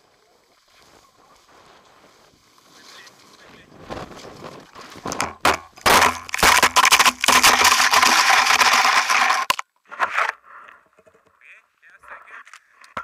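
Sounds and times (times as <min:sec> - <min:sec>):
snow scraping against microphone: 0:00.0 - 0:05.2.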